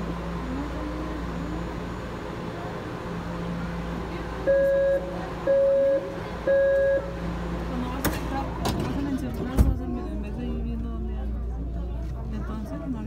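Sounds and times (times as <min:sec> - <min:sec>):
distant murmuring voices: 0:00.0 - 0:13.0
electronic warning beeps: 0:04.5 - 0:07.2.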